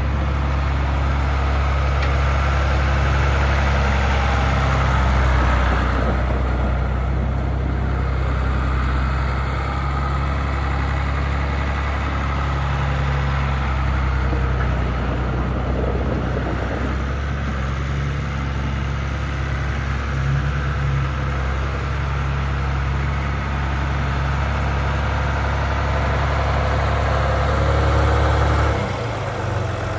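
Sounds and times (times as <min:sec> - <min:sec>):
tractor diesel engine running: 0:00.0 - 0:29.9.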